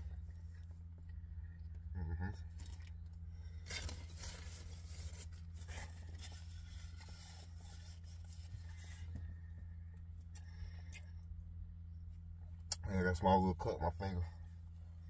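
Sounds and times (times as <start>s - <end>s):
steady low hum: 0.0s - 15.0s
bandage rustling and scraping: 3.5s - 9.3s.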